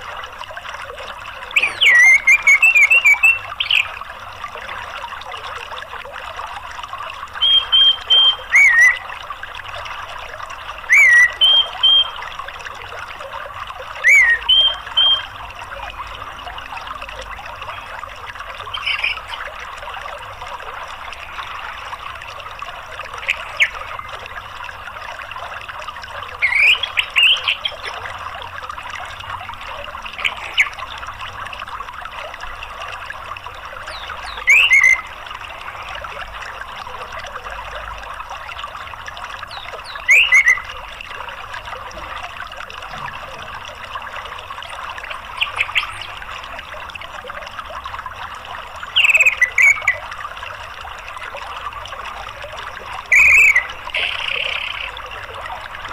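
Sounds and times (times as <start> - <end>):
trickle of running water: 0.0 - 55.9.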